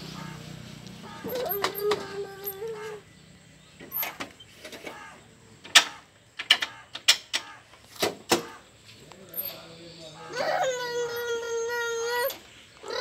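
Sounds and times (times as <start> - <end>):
tractor levers clicking and clunking: 5.6 - 8.6.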